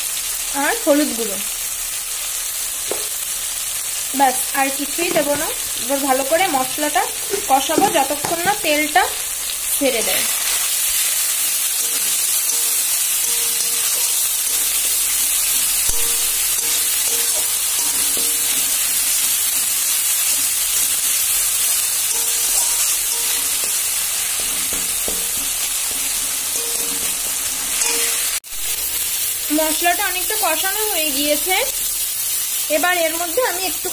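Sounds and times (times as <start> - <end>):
spice paste sizzling in hot oil: 0.0 - 33.9
metal spatula stirring: 9.8 - 19.3, 20.3 - 29.6.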